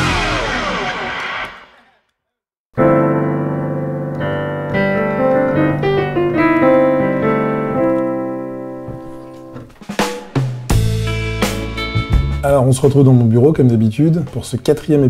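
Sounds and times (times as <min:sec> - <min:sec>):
digital piano chords and notes: 0:02.8 - 0:14.3.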